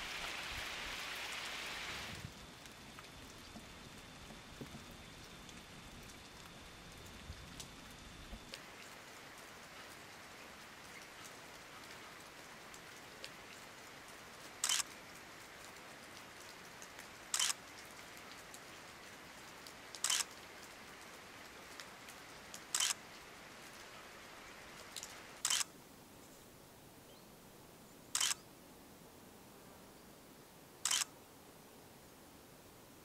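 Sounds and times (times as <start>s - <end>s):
faint rain hiss: 0.0s - 33.0s
camera shutter clicks: 14.6s - 14.9s, 17.3s - 17.6s, 20.0s - 20.3s, 22.7s - 23.0s, 25.0s - 25.7s, 28.2s - 28.4s, 30.8s - 31.1s.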